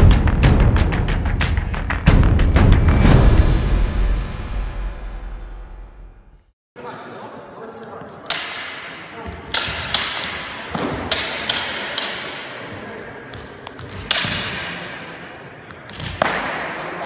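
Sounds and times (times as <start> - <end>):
swords clashing: 8.3 - 12.6, 14.0 - 15.0.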